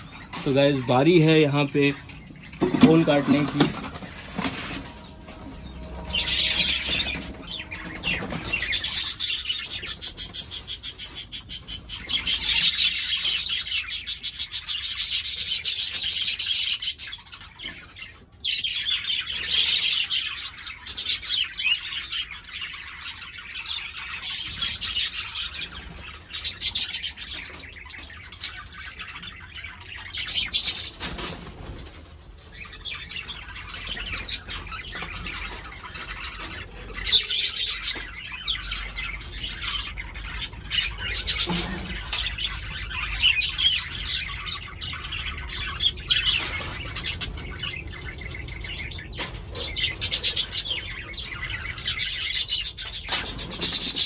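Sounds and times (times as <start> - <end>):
cockatiels chirping: 0.0 - 54.0.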